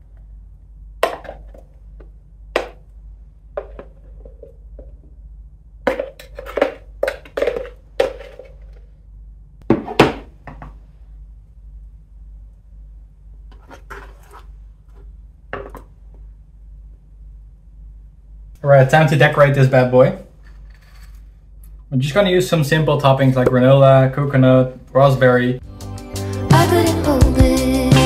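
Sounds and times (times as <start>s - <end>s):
wooden spoon scraping blender jar: 13.5s - 14.5s.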